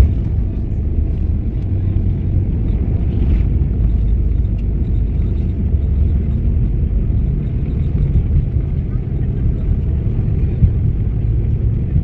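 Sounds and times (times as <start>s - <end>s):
airliner cabin low rumble: 0.0s - 12.0s.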